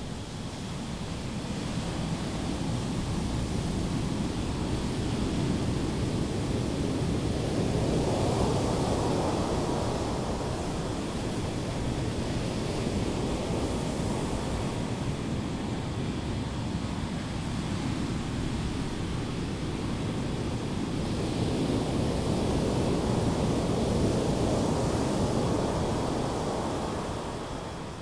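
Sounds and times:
ocean waves breaking on beach: 0:18.1 - 0:28.0.

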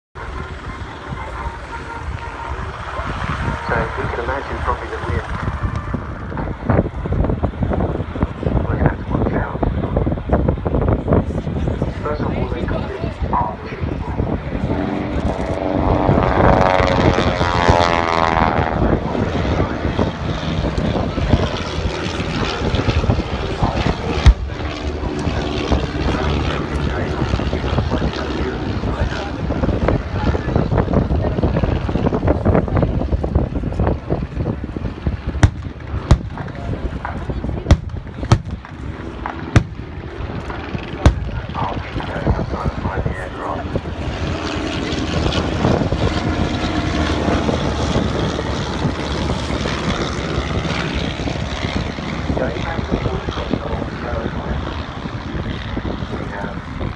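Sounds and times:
propeller planes droning overhead: 0:00.2 - 0:56.9
wind buffeting microphone: 0:00.2 - 0:56.9
loud explosion boom: 0:24.1 - 0:24.7, 0:35.2 - 0:40.1.

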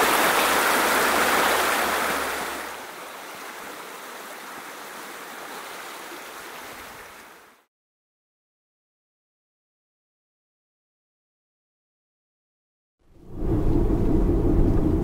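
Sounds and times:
water rushing in rocky stream: 0:00.0 - 0:07.7.

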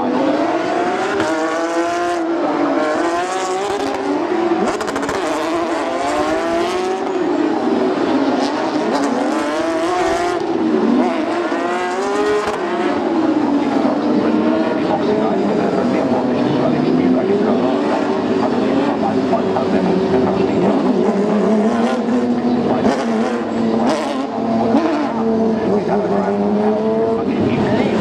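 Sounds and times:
race cars passing: 0:00.0 - 0:28.0.

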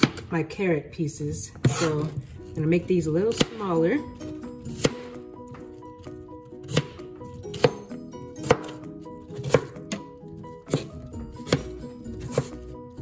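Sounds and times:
soft background music: 0:00.0 - 0:13.0
knife chopping on cutting board: 0:03.2 - 0:03.7, 0:04.7 - 0:05.6, 0:06.6 - 0:13.0.

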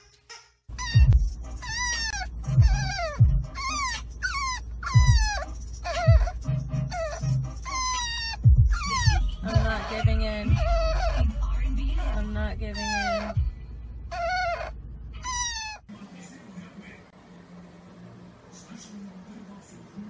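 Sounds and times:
puppy whining and crying: 0:00.7 - 0:11.4, 0:12.0 - 0:13.5, 0:14.1 - 0:15.9
low rumble inside car: 0:00.8 - 0:15.6.

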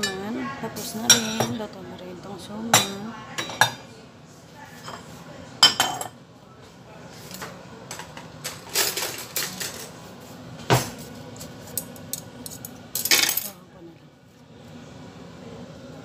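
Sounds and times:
utensils clinking on steel pot: 0:05.6 - 0:06.2, 0:07.9 - 0:10.0, 0:11.4 - 0:13.6.

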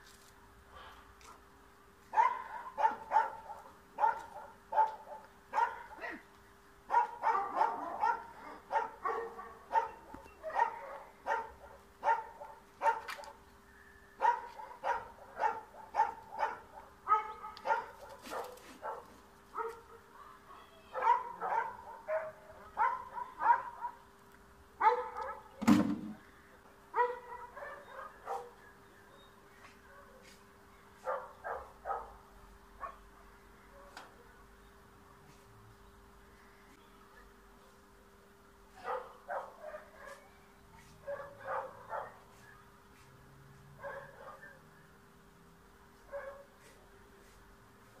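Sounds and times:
small dog barking: 0:02.1 - 0:06.2, 0:06.9 - 0:13.4, 0:14.2 - 0:20.1, 0:20.9 - 0:24.0, 0:24.8 - 0:25.6, 0:26.9 - 0:28.6, 0:31.0 - 0:33.1, 0:38.8 - 0:42.4, 0:43.8 - 0:44.6, 0:46.0 - 0:46.8.

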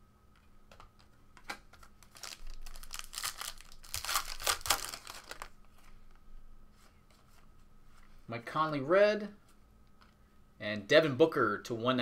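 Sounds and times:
foil wrapper crinkling: 0:01.7 - 0:05.6.

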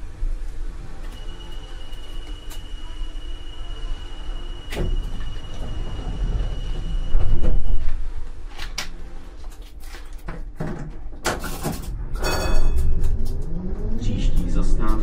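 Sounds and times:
tram doors clunking: 0:00.0 - 0:15.0
steady high tone: 0:01.0 - 0:07.8.

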